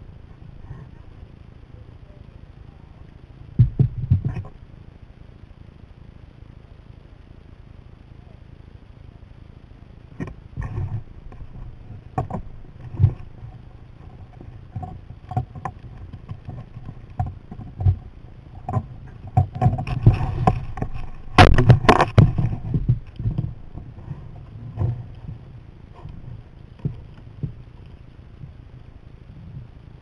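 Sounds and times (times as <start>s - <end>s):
splashing and clatter: 10.2s - 28.5s
paddle strokes in water: 10.2s - 30.0s.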